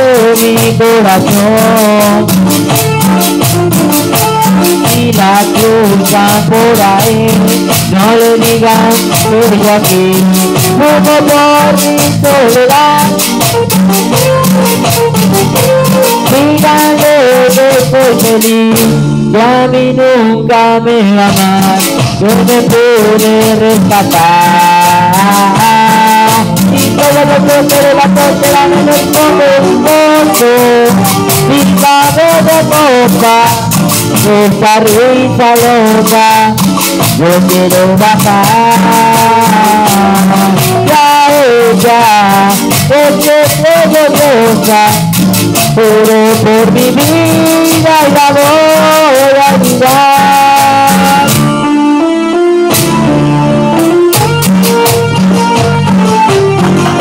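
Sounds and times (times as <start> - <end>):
band music: 0.0 - 57.0
metal scraper rhythm: 21.3 - 51.5.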